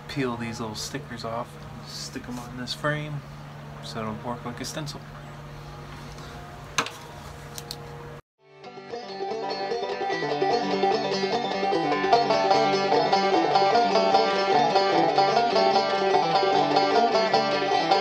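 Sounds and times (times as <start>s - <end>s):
clawhammer banjo music: 8.5s - 18.0s.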